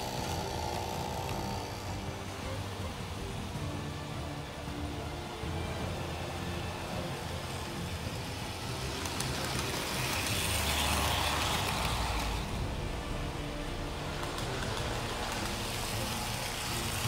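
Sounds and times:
toy train motor hum: 0.0 - 17.0
toy train wheel noise: 0.0 - 17.0.

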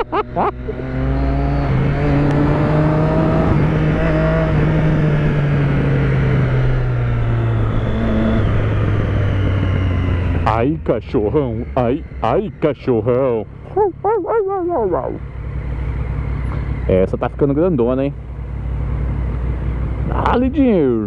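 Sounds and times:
motorcycle engine running: 0.0 - 21.0
wind and road noise: 0.0 - 21.0.

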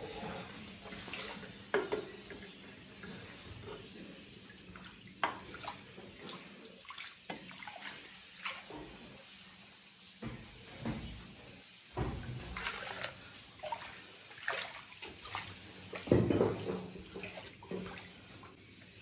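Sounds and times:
broth sloshing and splashing: 4.7 - 9.2, 12.4 - 18.6.

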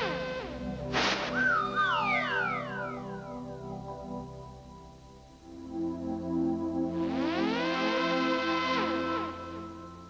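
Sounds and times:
synthesizer tones gliding downward: 0.0 - 4.2
held synthesizer notes: 0.0 - 4.6.

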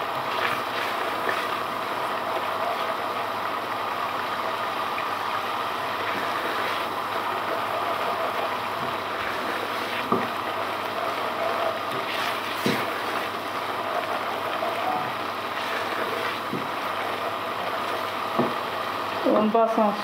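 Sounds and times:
curry sizzling in a pot: 0.0 - 20.0
ladle stirring: 6.0 - 14.8.

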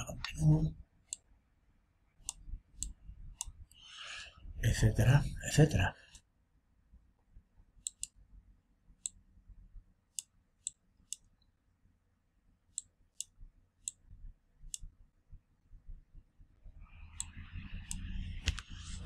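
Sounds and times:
faint low room hum: 0.0 - 19.0
computer mouse clicking: 2.2 - 3.8, 7.8 - 8.2, 17.1 - 19.0.

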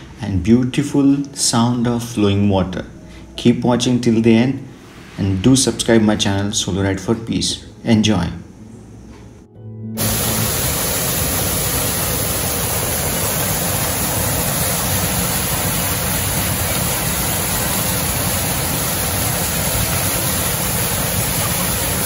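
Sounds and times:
waterfall rushing onto rocks: 10.0 - 22.0.

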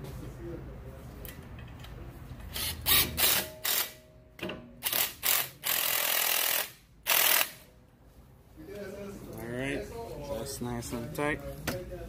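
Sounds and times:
power tool driving screw: 2.5 - 4.0, 4.8 - 7.6.

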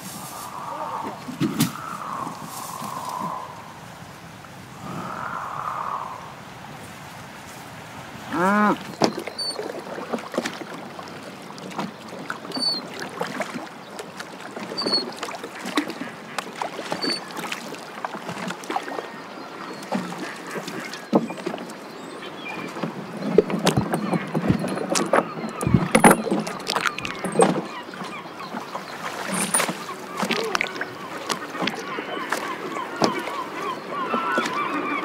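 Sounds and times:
oars knocking and splashing: 0.0 - 3.4, 8.1 - 35.0
cow lowing: 8.3 - 8.8.

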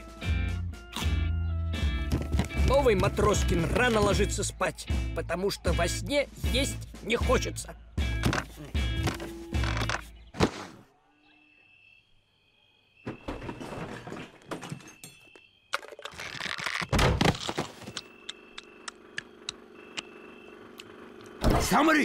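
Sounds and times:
low hum with soft ticks: 18.0 - 21.4.

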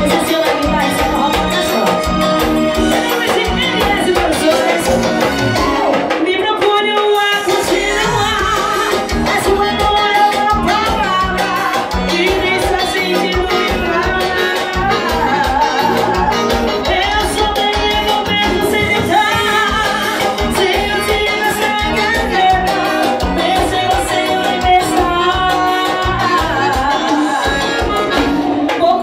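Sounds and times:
live band playing: 0.0 - 29.0
woman singing into microphone: 0.0 - 29.0.

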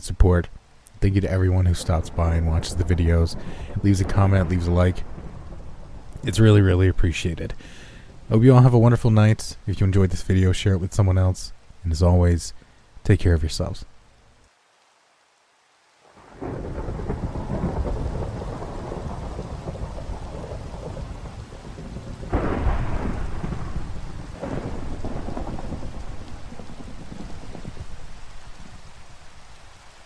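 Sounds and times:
steady rain: 0.0 - 30.0
thunder rumbling: 1.0 - 10.2, 16.1 - 29.7
sharp thunder cracks: 1.8 - 6.7, 16.2 - 28.9.

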